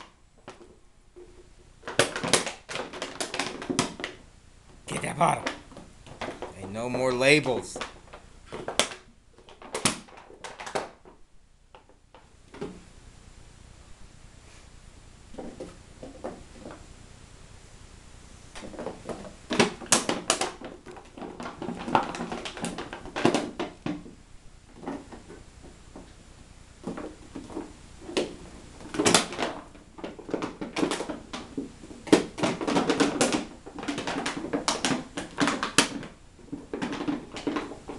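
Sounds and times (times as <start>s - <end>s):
plastic bottle crinkling: 0.0s - 4.2s, 4.8s - 11.2s, 18.6s - 24.1s, 26.8s - 37.9s.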